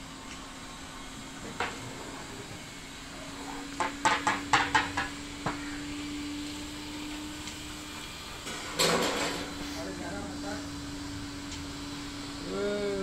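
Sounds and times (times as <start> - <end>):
sharp knocks or clanks: 3.8 - 5.6.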